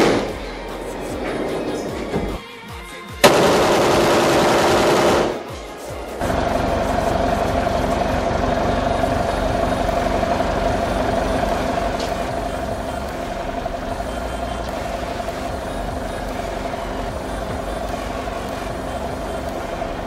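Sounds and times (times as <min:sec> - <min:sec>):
motor humming: 0:06.2 - 0:20.0.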